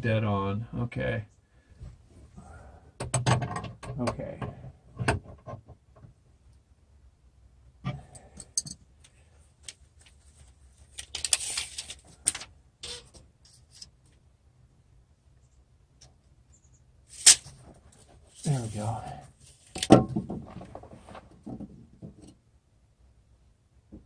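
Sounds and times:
rattling and rustling: 17.2s - 22.4s.

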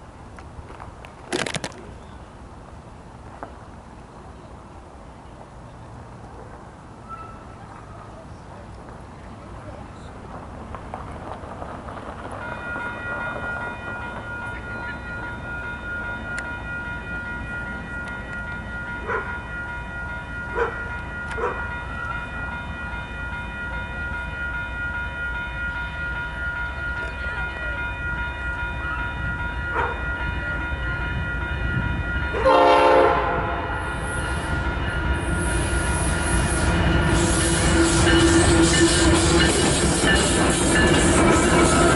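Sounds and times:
passing train rumble: 0.0s - 41.9s
locomotive air horn chord: 32.3s - 34.6s.

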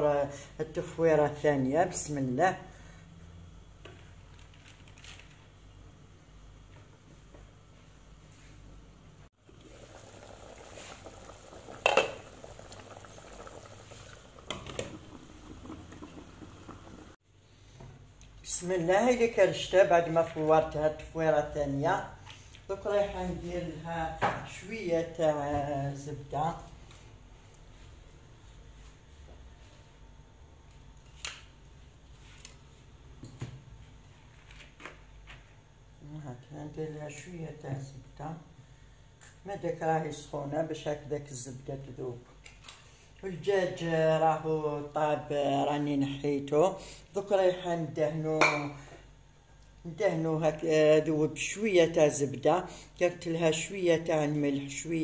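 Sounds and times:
broth bubbling in a pot: 9.3s - 17.2s
hand working noodles in bowl: 9.4s - 17.2s.

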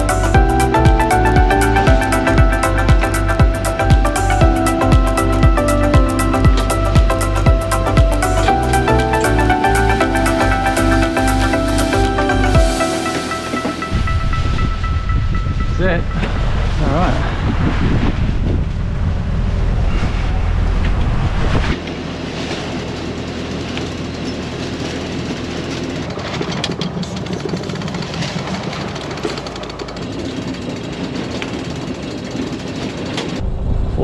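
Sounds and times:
water noise: 0.0s - 34.0s
wind rumbling on microphone: 13.9s - 21.9s, 30.1s - 34.0s.

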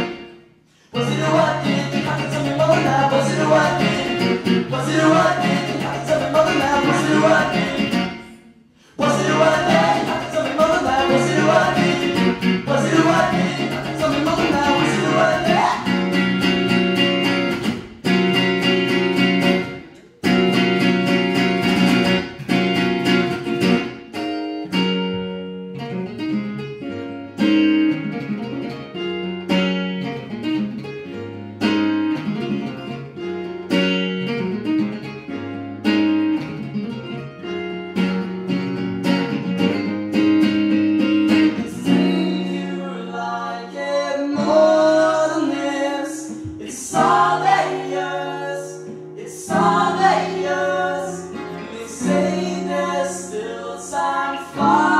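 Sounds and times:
acoustic guitar: 0.0s - 54.9s
electric bass guitar: 1.0s - 8.4s, 9.0s - 43.3s
upright piano: 9.0s - 24.0s, 35.2s - 54.9s.

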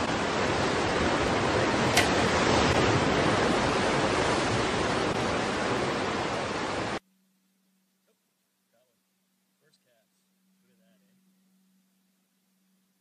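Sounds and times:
surf rushing on rocks: 0.0s - 7.0s
sharp click: 1.9s - 2.2s.

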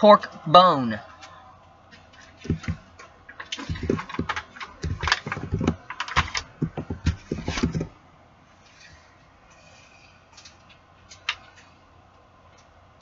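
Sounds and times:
foil tray crinkling and knocking: 2.4s - 2.8s, 3.5s - 7.9s.

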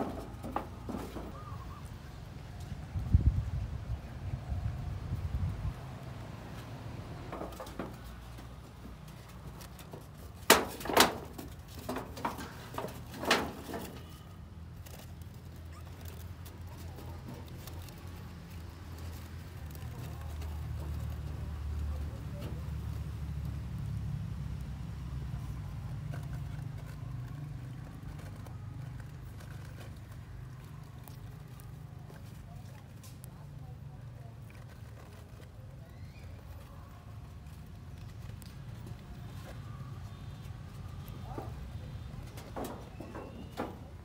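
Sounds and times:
puppies scuffling on leaves: 11.3s - 24.0s.

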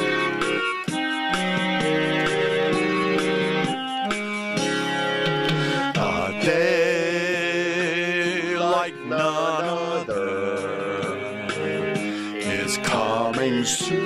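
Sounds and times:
guitar accompaniment: 0.0s - 14.0s
person singing with vibrato: 5.6s - 14.0s.

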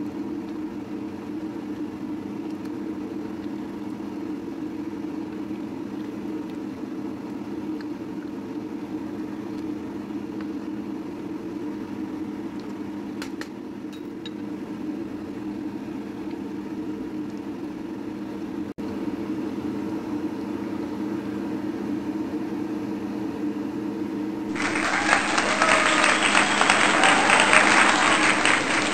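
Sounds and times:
loud applause: 24.5s - 28.9s.

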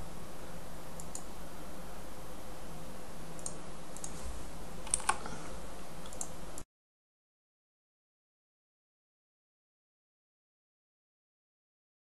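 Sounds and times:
faint hiss and hum: 0.0s - 6.6s.

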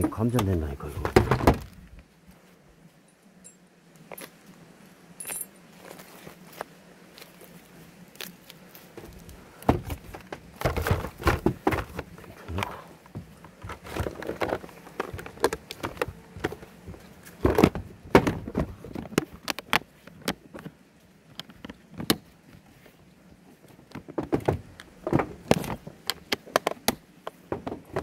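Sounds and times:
plastic case clicks and rattles: 13.5s - 16.7s.

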